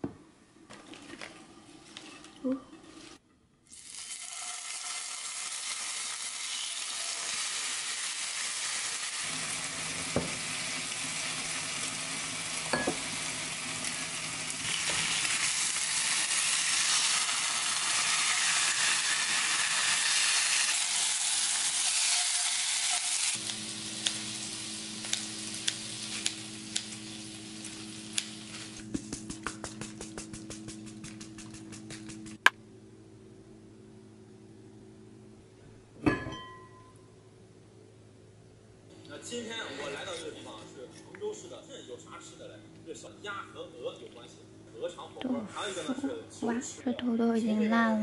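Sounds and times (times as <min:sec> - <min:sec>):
meat sizzling in a skillet: 0:03.7 - 0:28.8.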